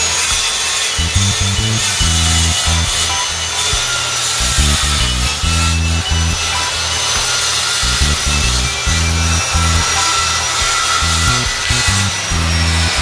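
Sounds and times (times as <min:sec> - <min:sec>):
circular saw cutting wood: 0:00.0 - 0:13.0
music with pulsing bass: 0:00.0 - 0:13.0.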